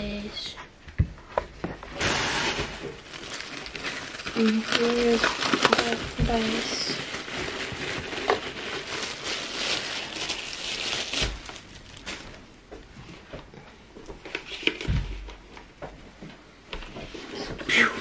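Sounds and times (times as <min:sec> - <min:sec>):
packaging crinkling and rustling: 0:01.9 - 0:12.9.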